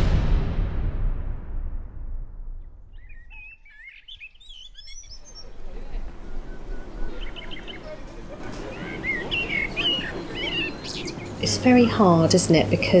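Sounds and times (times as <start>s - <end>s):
small birds chirping: 2.9s - 12.9s
faint voices of passers-by: 5.2s - 13.0s.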